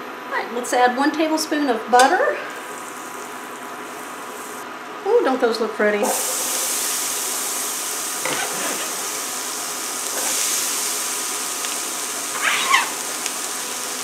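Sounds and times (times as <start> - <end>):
vegetables sizzling in oil: 2.1 - 5.2, 5.8 - 14.0
vegetables scraped into pan: 8.2 - 9.2, 10.0 - 13.3.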